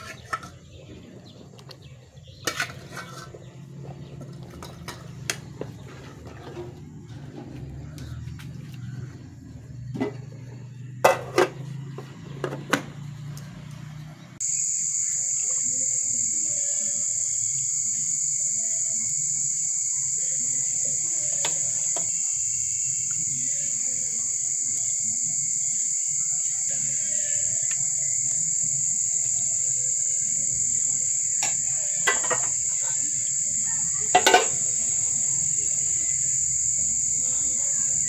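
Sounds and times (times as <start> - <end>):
insects chirring: 14.4 - 38.0.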